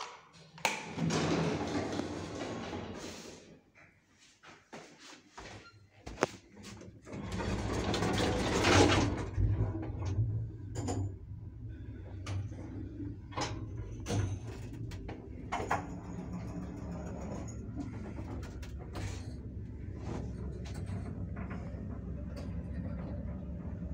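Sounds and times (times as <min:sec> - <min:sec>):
sliding doors rumbling shut: 0:00.8 - 0:03.5, 0:06.8 - 0:23.9
hoist motor low hum: 0:07.1 - 0:23.9.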